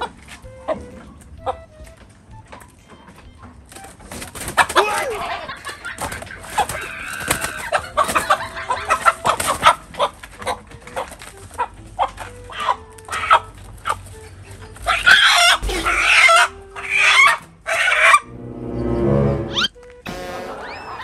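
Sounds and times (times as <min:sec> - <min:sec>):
roosters squawking and clucking: 0:03.5 - 0:18.3
birds clattering against wire: 0:03.6 - 0:18.1.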